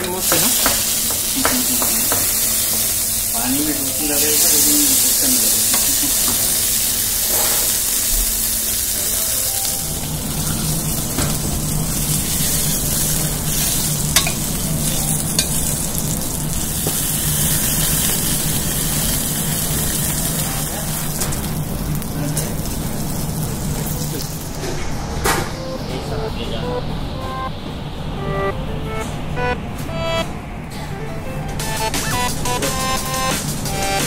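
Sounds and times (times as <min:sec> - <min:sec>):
fish sizzling in hot oil: 0:00.2 - 0:24.6.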